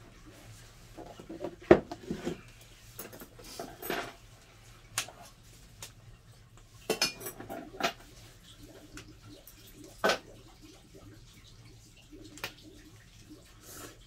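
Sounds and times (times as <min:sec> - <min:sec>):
dishes and cutlery clinking: 0:03.0 - 0:04.2, 0:06.8 - 0:08.1.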